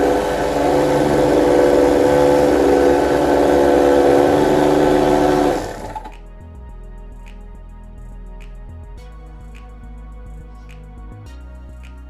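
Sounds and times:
blender motor running: 0.0s - 6.1s.

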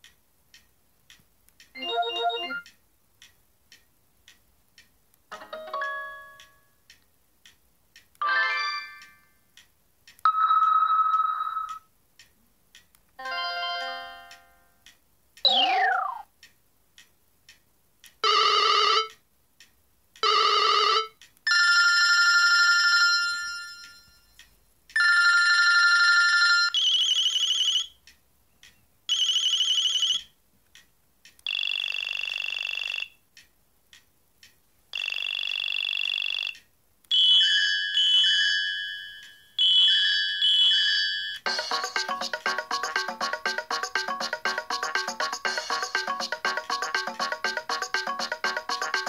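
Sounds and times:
faint scrolling clicks: 0.0s - 8.2s, 9.0s - 13.2s, 14.2s - 21.5s, 23.5s - 25.2s, 26.8s - 37.4s
electronic phone jingles and chimes: 10.3s - 11.8s.

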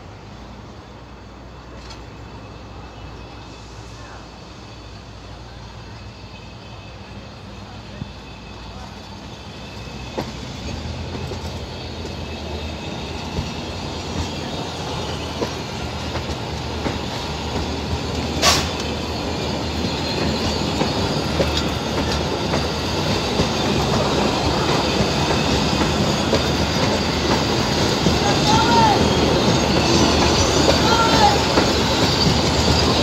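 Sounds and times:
train wheels clicking over rail joints: 9.8s - 33.0s.

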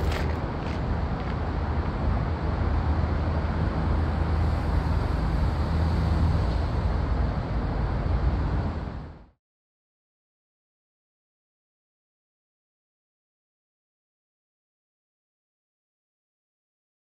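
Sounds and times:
loud low engine rumble: 0.0s - 9.3s.

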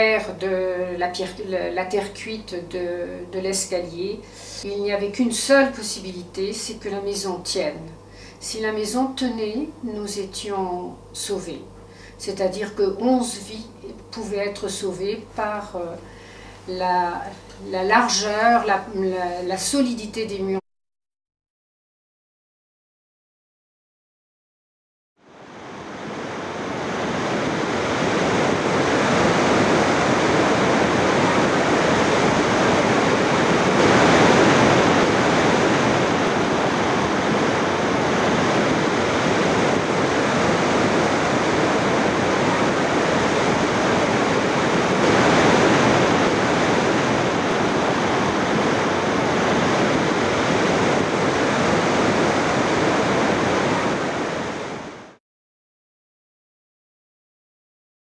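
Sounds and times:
rushing water of a torrent: 25.5s - 55.1s.

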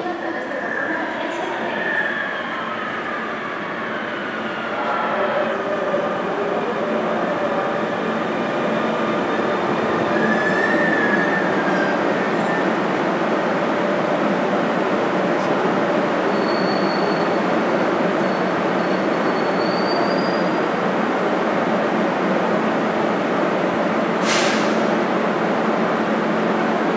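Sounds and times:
train rumble and hiss: 2.5s - 26.9s
brake squeal: 16.3s - 17.5s.

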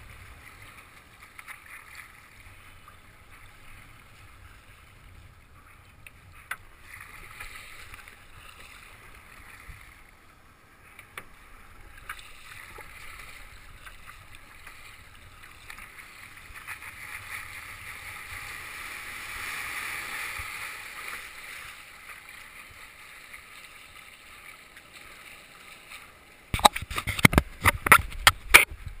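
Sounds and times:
water splashing against kayak hull: 0.0s - 29.0s
knocks and scrapes at camera: 26.6s - 28.8s.

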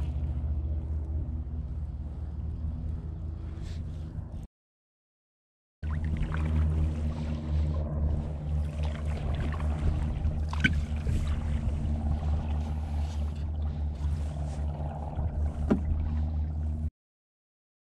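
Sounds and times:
low rumble: 0.0s - 4.5s, 5.8s - 16.9s
water sloshing and splashing: 5.8s - 16.9s.

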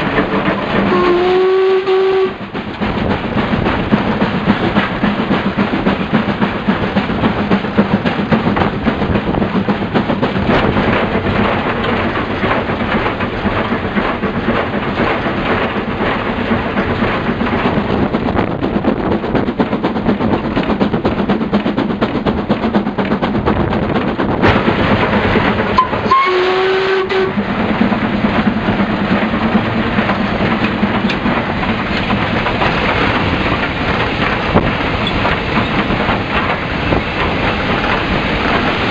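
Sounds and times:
steam locomotive working: 0.0s - 38.9s
wheels clattering on rails: 0.0s - 38.9s.

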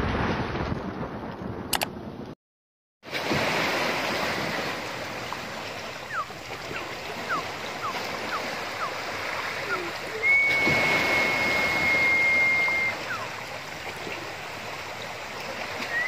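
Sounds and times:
single click: 1.7s - 1.9s
seawater washing among rocks: 3.1s - 16.0s.

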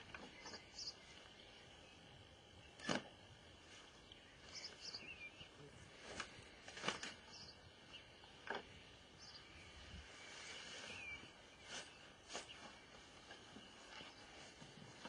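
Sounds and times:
faint bird chirps: 0.0s - 2.9s, 3.7s - 6.2s, 6.8s - 8.4s, 9.1s - 15.0s
sharp clicks or rustles: 2.8s - 3.1s, 6.0s - 7.3s.

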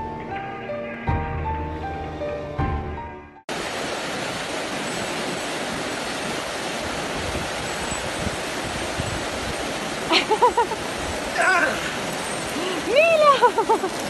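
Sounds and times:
rushing rocky creek: 3.5s - 14.0s.

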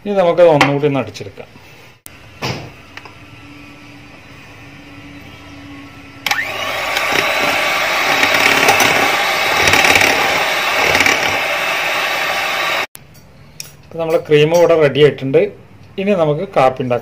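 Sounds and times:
electric hand mixer whirring: 6.2s - 12.9s.

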